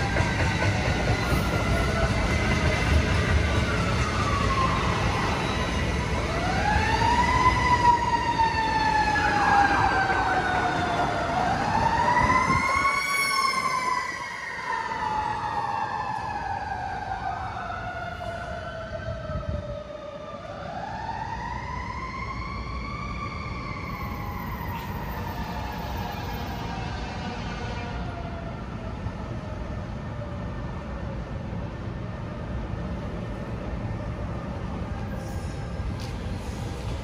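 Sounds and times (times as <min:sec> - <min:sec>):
train rumbling: 0:00.0 - 0:14.3, 0:23.2 - 0:37.0
emergency siren wailing: 0:00.0 - 0:32.6.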